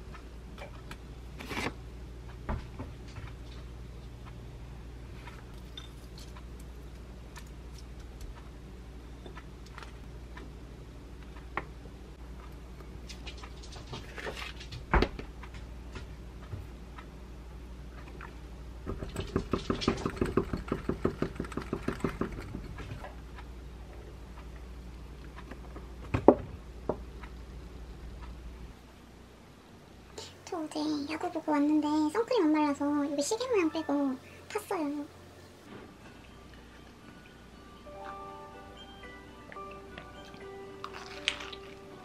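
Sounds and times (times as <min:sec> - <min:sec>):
milk glugging into a glass: 0:40.8 - 0:41.8.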